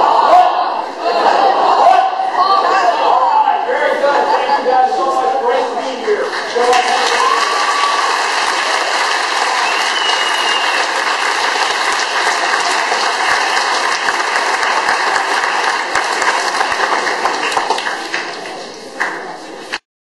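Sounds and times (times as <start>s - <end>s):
audience applauding: 6.1s - 19.8s.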